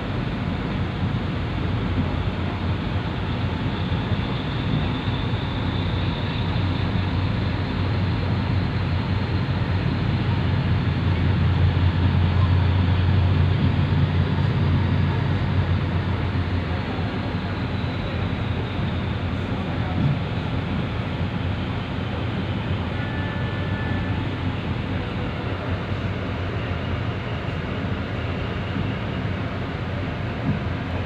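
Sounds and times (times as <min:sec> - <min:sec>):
ferry engine drone: 0:00.0 - 0:31.0
rushing water: 0:00.0 - 0:31.0
wind: 0:00.0 - 0:31.0.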